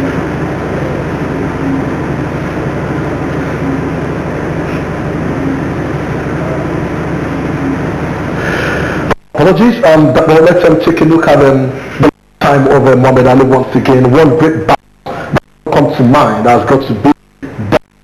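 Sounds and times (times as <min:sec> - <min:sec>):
low hum: 0:00.0 - 0:09.3
steady even noise: 0:00.0 - 0:18.0.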